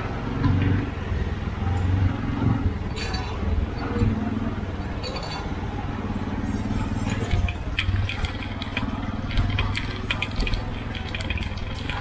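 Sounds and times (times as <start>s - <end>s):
bicycle rolling on rough street: 5.8s - 12.0s.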